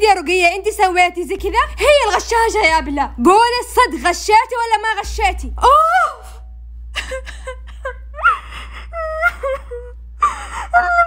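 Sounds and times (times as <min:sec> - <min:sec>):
girl crying and wailing: 0:07.0 - 0:11.0.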